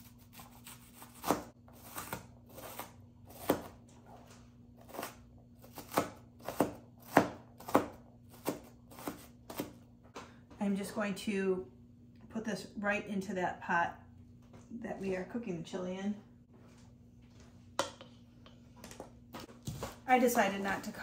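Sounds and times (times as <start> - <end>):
knife chopping on cutting board: 0.3 - 3.8, 4.8 - 9.8.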